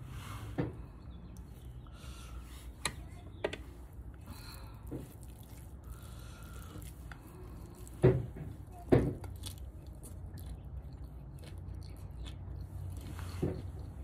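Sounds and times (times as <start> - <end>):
low steady hum: 0.0 - 14.0
rice being mixed by hand: 1.5 - 8.8.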